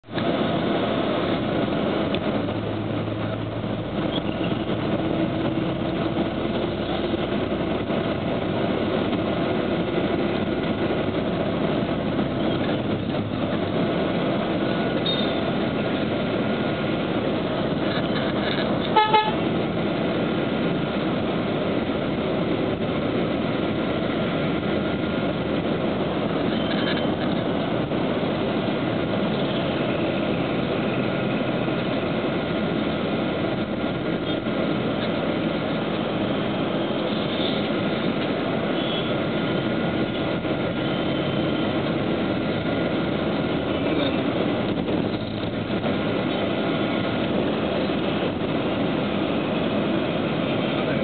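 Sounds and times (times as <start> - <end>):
traffic engines and tyres: 0.0 - 51.0
loud horn blast: 18.8 - 19.5
vehicle horn toots: 18.8 - 19.5, 38.8 - 39.2.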